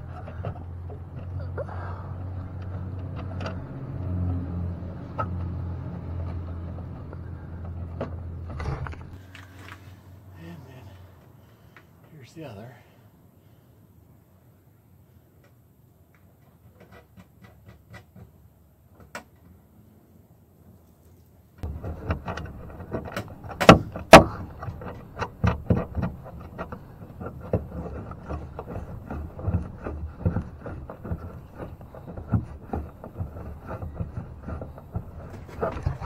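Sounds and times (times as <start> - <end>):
rubbing and clicking of metal parts: 0.0 - 9.9, 16.2 - 18.6, 21.6 - 36.0
sharp knocks: 21.6 - 36.0.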